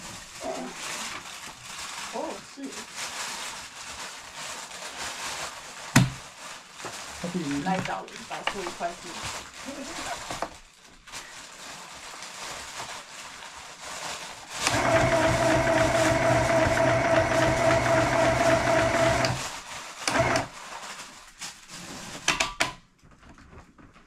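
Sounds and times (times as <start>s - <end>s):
sewing machine stitching: 14.6s - 19.4s, 20.0s - 20.5s.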